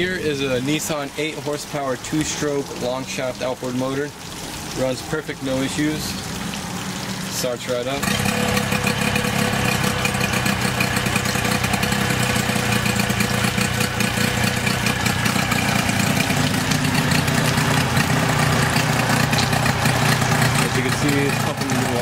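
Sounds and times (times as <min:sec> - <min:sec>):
outboard motor running: 0:06.0 - 0:22.0.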